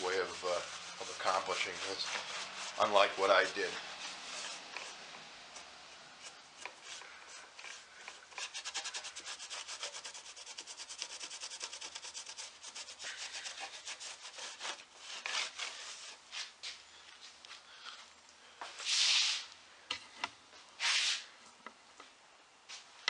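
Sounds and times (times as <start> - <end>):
cloth pad rubbing wood: 0.0 - 16.6.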